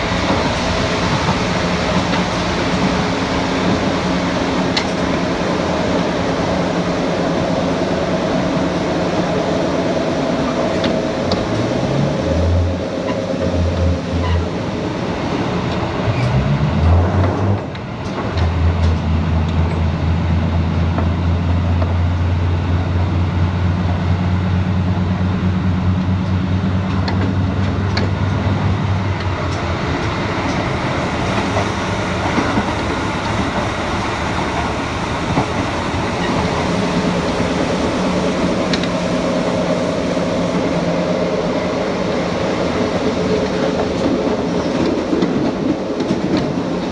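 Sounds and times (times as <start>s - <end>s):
rail-joint clatter: 0.0s - 5.3s, 12.6s - 14.6s, 15.6s - 19.9s, 25.9s - 39.7s, 42.4s - 46.9s
train wheels rolling: 0.0s - 20.0s, 25.6s - 46.9s.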